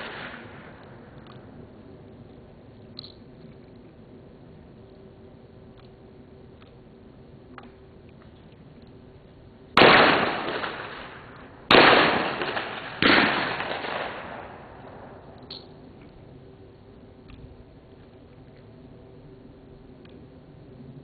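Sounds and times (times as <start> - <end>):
shotgun shots with echo: 9.8 - 14.7.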